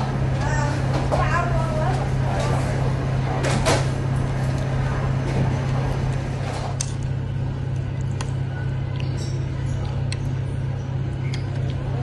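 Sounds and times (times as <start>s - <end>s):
restaurant background hum: 0.0s - 12.0s.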